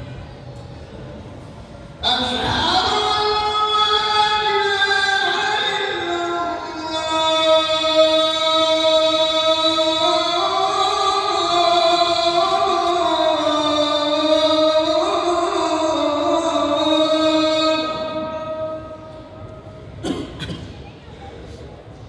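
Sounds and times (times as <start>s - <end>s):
man chanting: 2.0s - 19.1s.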